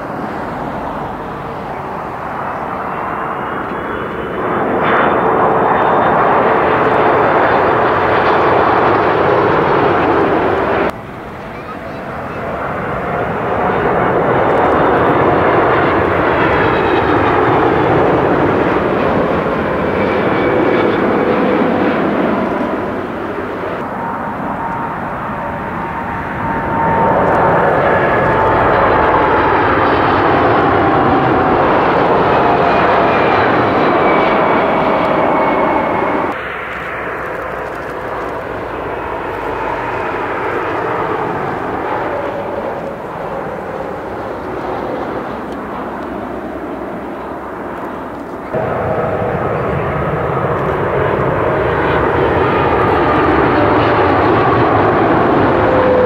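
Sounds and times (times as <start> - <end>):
business jet passing: 0.0 - 56.0
jet airliners passing low: 0.0 - 56.0.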